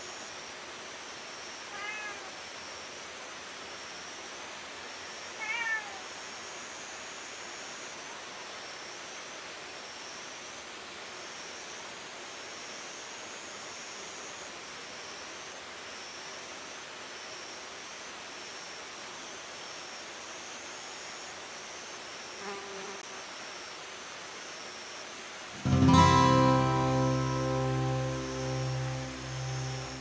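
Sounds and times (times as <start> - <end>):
cat meowing: 1.7 - 2.4, 5.4 - 6.1.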